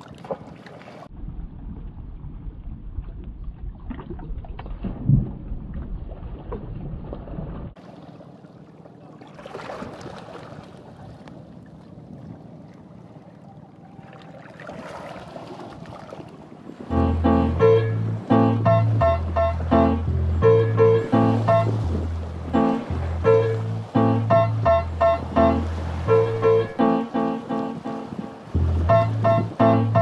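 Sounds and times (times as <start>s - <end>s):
sea water washing: 6.3s - 30.0s
low rumble: 16.9s - 26.8s.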